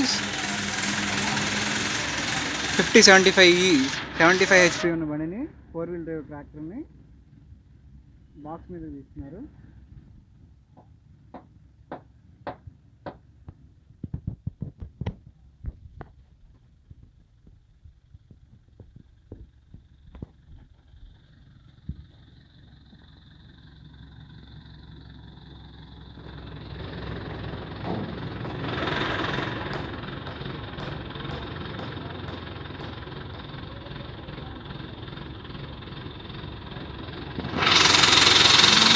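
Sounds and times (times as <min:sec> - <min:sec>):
diesel engine running: 0:00.0 - 0:14.0, 0:15.2 - 0:38.9
sharp metallic knocks: 0:10.8 - 0:13.2, 0:27.7 - 0:33.2.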